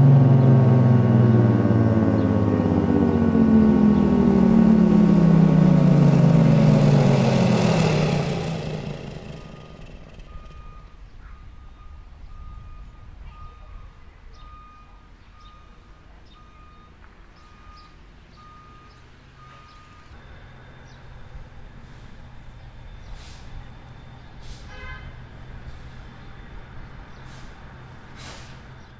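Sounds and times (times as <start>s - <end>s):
diesel truck engine running: 0.0s - 28.9s
truck reversing alarm beeping: 0.0s - 28.9s
short air hisses: 23.1s - 23.6s, 27.2s - 28.7s.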